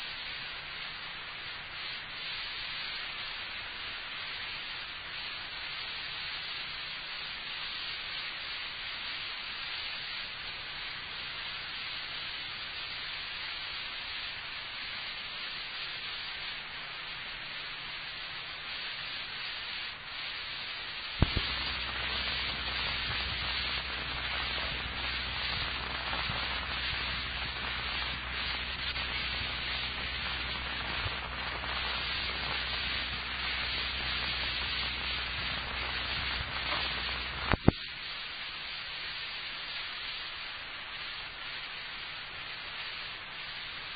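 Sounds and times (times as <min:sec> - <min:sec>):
recording hiss: 0:00.0 - 0:43.9
crackling: 0:18.4 - 0:40.4
low hum: 0:21.2 - 0:37.8.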